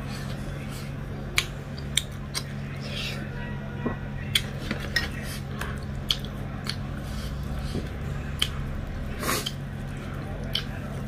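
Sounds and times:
steady low hum: 0.0s - 11.0s
wet chewing clicks and smacks: 1.3s - 2.6s, 5.6s - 11.0s.

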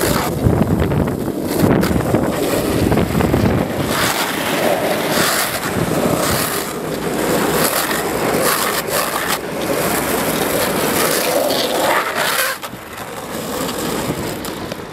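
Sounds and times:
wind rushing over microphone: 0.0s - 9.0s
longboard wheels rolling on asphalt: 0.0s - 14.9s.

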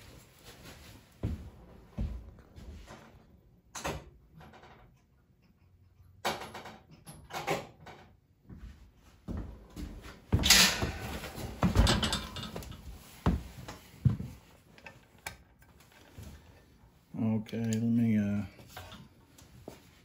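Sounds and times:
metal tools knocking and clunking: 10.4s - 12.9s.

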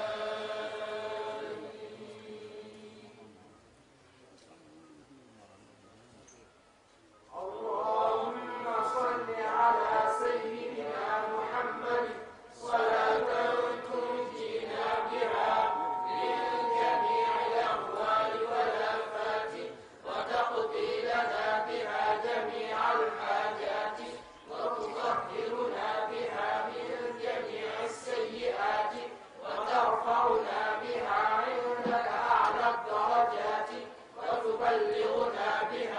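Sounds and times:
voices chanting: 0.0s - 3.1s, 7.4s - 35.9s.

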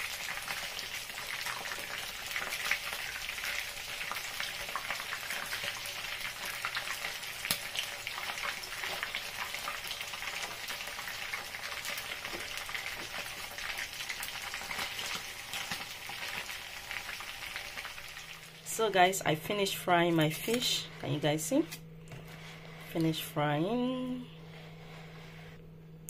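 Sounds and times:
fish frying in hot oil: 0.0s - 18.6s.

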